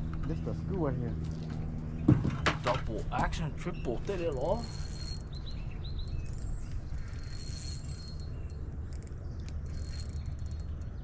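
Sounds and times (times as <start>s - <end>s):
low steady rumble: 0.0s - 11.0s
fishing reel clicking: 4.2s - 5.5s, 6.1s - 11.0s.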